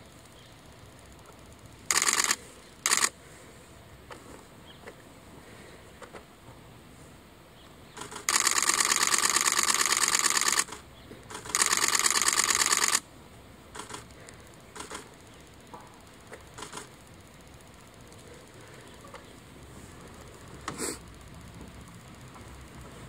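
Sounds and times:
camera shutter rapid clicking: 0:01.9 - 0:03.2, 0:08.0 - 0:13.1, 0:13.7 - 0:15.3, 0:16.5 - 0:17.0.

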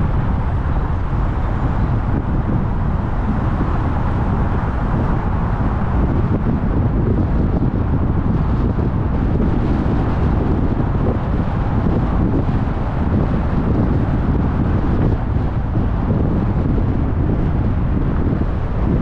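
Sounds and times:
car road noise: 0:00.0 - 0:19.0
wind buffeting microphone: 0:00.0 - 0:19.0.

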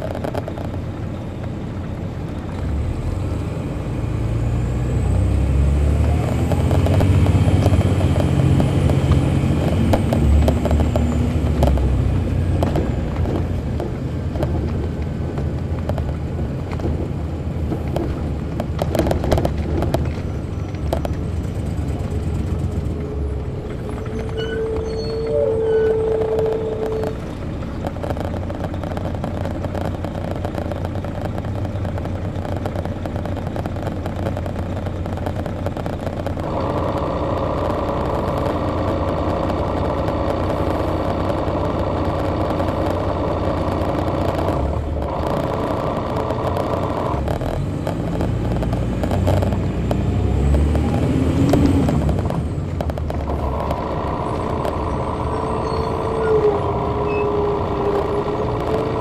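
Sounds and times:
bus diesel engine: 0:00.0 - 0:59.0.

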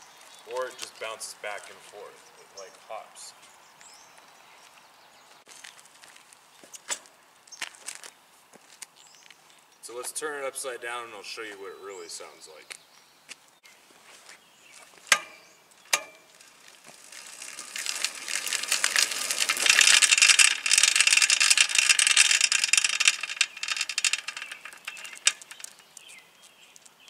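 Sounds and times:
bicycle hub and chain rattling: 0:15.1 - 0:26.1.

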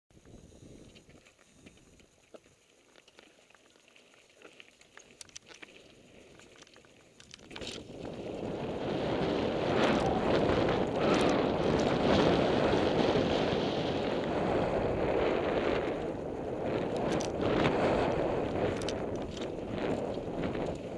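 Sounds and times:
small clicks: 0:00.2 - 0:08.5, 0:16.9 - 0:17.8, 0:18.5 - 0:20.9
tyres on dirt: 0:00.8 - 0:14.0
wind rushing on microphone: 0:07.3 - 0:20.9.

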